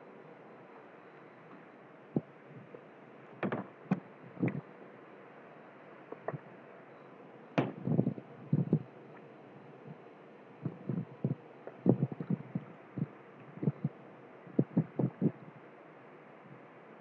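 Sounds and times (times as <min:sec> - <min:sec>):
faint steady hiss: 0:00.0 - 0:17.0
short low thumps: 0:10.6 - 0:13.9.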